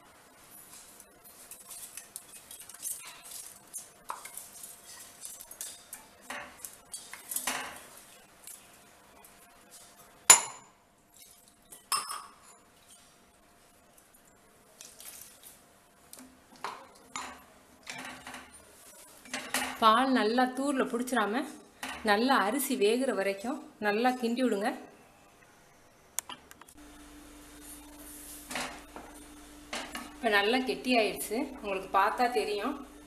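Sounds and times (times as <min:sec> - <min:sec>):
spatula scraping a pan: 0:00.7 - 0:08.0.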